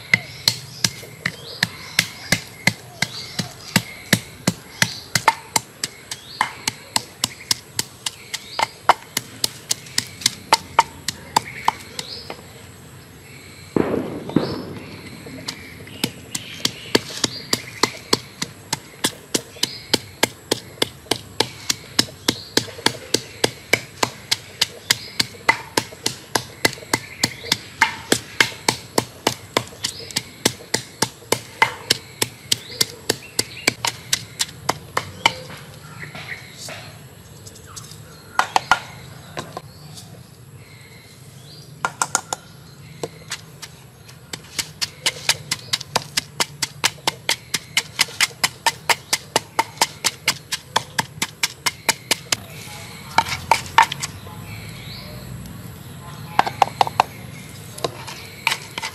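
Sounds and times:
wooden pestle pounding in mortar: 0:00.0 - 0:12.3, 0:15.3 - 0:35.5, 0:43.0 - 0:52.4, 0:53.2 - 0:54.1.

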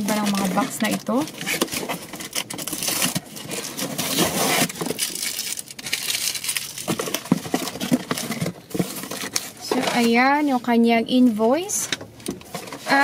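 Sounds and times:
packing tape tearing: 0:00.0 - 0:10.1
cardboard rustling and crinkling: 0:00.0 - 0:13.0.

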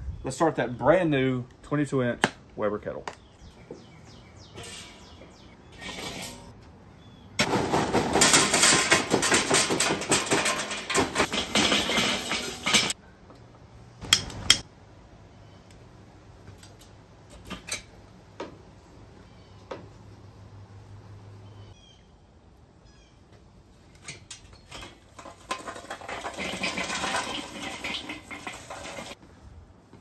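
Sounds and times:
charcoal clattering onto grate: 0:07.4 - 0:13.0, 0:24.0 - 0:29.2
sharp metal clanks: 0:08.1 - 0:13.0.

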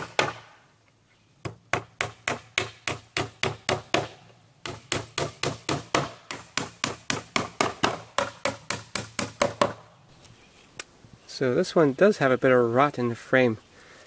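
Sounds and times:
hammer striking nails into wood: 0:00.0 - 0:00.5, 0:01.4 - 0:09.8.

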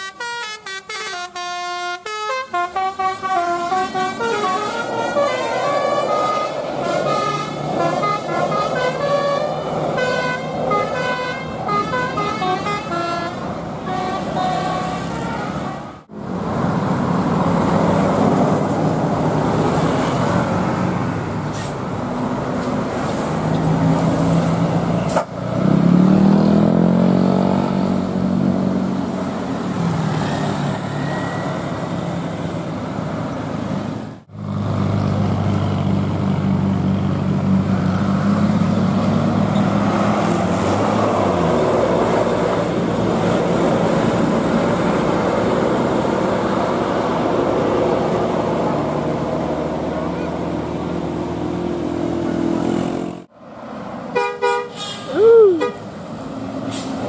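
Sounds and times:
road traffic: 0:00.0 - 0:57.0
vehicle engine pulling away: 0:23.2 - 0:32.6, 0:34.3 - 0:53.3.

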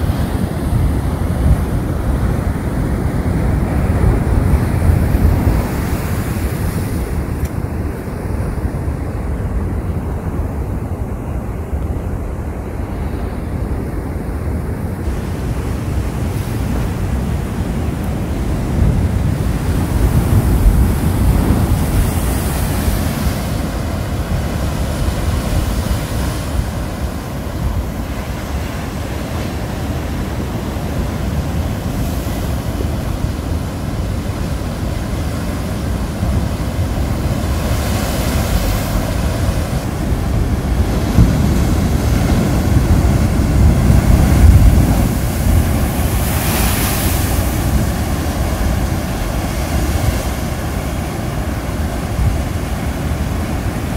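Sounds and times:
wind buffeting microphone: 0:00.0 - 0:53.9
surf breaking on rocks: 0:18.7 - 0:53.9.

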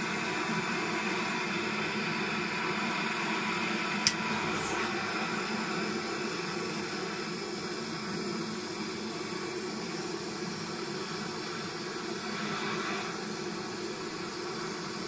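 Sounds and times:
blowtorch flames hissing: 0:02.8 - 0:15.0
sharp torch ignition click: 0:04.0 - 0:05.5.

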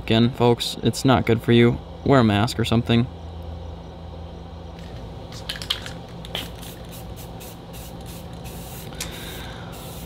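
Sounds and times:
spray paint can hissing: 0:06.2 - 0:10.0.

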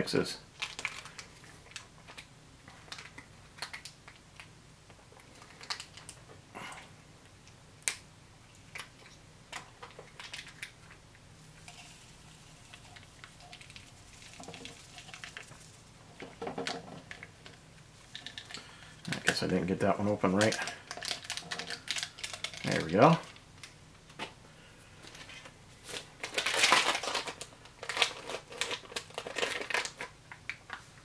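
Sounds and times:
foil packets crinkling: 0:00.6 - 0:02.3, 0:05.2 - 0:06.2, 0:09.8 - 0:10.8, 0:11.7 - 0:23.4, 0:25.1 - 0:30.9
packet rustling open: 0:00.6 - 0:02.3, 0:05.2 - 0:06.2, 0:09.8 - 0:10.8, 0:11.7 - 0:19.4, 0:20.3 - 0:23.4, 0:25.1 - 0:30.8.

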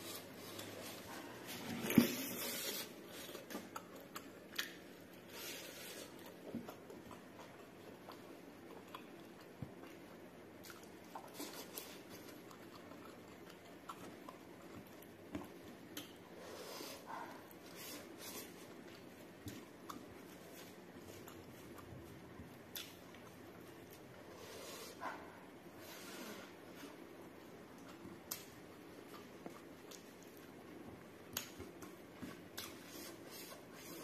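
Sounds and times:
close chewing: 0:02.7 - 0:16.4, 0:17.0 - 0:24.3.

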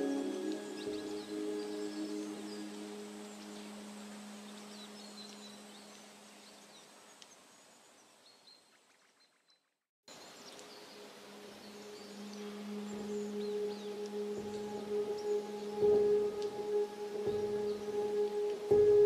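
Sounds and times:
singing bowl drone: 0:00.0 - 0:06.0, 0:11.3 - 0:19.0
new-age music: 0:00.0 - 0:06.8, 0:10.1 - 0:19.0.

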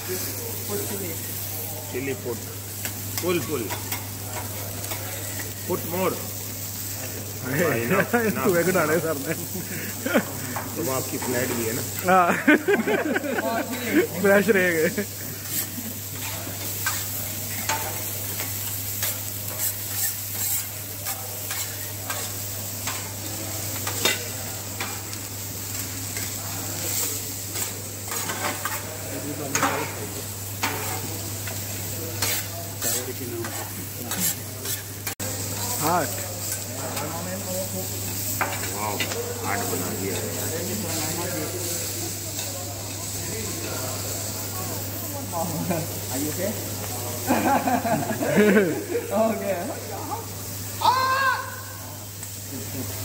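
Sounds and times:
food sizzling on griddle: 0:00.0 - 0:53.0
metal spatulas scraping hotplate: 0:15.2 - 0:23.1, 0:23.8 - 0:25.0, 0:25.7 - 0:28.9, 0:30.6 - 0:35.2.

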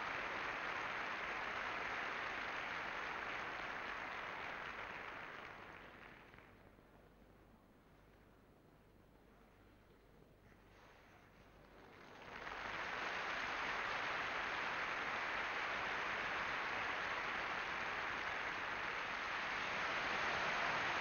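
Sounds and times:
crowd applause: 0:00.0 - 0:06.6, 0:11.7 - 0:21.0.

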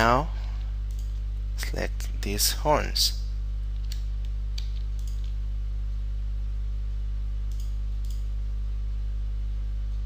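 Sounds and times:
steady low hum: 0:00.0 - 0:10.0
computer mouse clicking: 0:03.8 - 0:05.4, 0:07.5 - 0:08.3.

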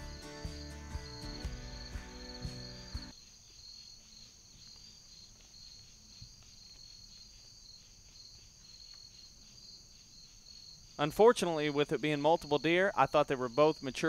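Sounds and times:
background music: 0:00.0 - 0:03.1
insect chorus: 0:00.0 - 0:14.0.

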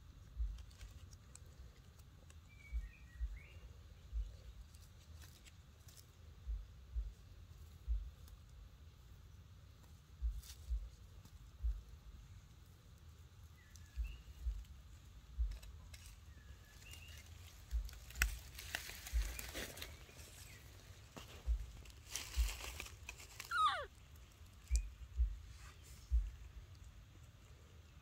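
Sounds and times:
soft low thumps: 0:00.1 - 0:00.7, 0:02.7 - 0:04.6, 0:06.4 - 0:08.3, 0:10.2 - 0:12.3, 0:13.9 - 0:15.8, 0:17.6 - 0:22.9, 0:24.7 - 0:26.6
dry leaves rustling: 0:04.5 - 0:06.4, 0:14.7 - 0:27.4
faint high chirps: 0:23.4 - 0:23.9
high call falling in pitch: 0:23.5 - 0:23.9.

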